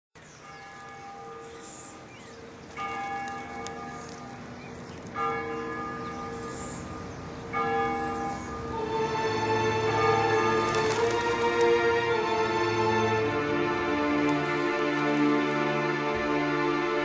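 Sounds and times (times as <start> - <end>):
church bell tolling: 0.4 - 1.6, 2.4 - 12.5.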